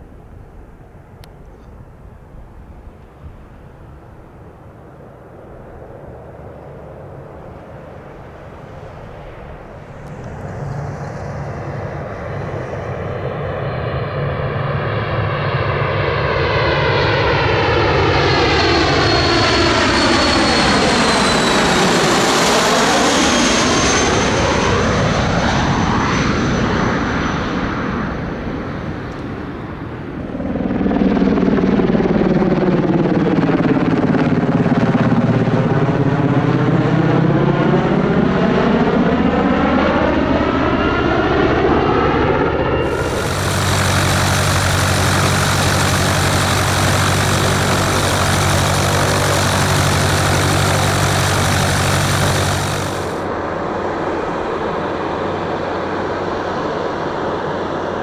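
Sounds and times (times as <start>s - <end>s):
jet passing overhead: 5.4s - 31.6s, 37.6s - 56.6s
helicopter flying past: 5.8s - 26.2s, 30.2s - 56.5s.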